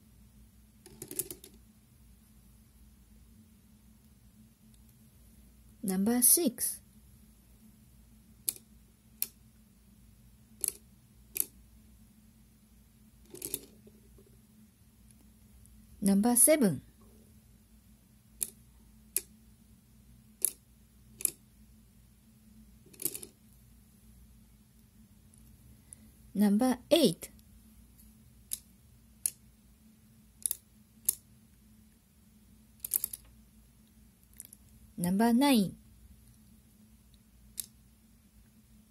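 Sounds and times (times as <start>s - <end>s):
abacus beads clicking: 8.4s - 9.4s, 10.6s - 11.6s, 13.3s - 13.8s, 18.4s - 19.4s, 20.4s - 21.4s, 22.9s - 23.4s, 28.4s - 29.5s, 30.4s - 31.3s, 32.8s - 33.3s, 34.2s - 34.8s, 37.1s - 37.8s.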